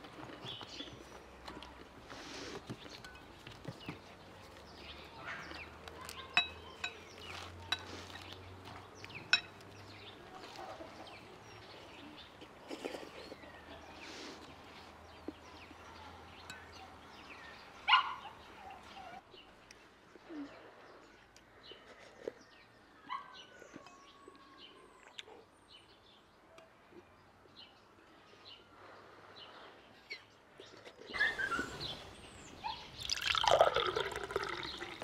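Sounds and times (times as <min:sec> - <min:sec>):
birds chirping: 0:00.0 - 0:35.0
metal spoons clinking on ceramic bowls: 0:03.0 - 0:03.3, 0:05.5 - 0:08.3, 0:09.2 - 0:09.9, 0:16.4 - 0:16.9.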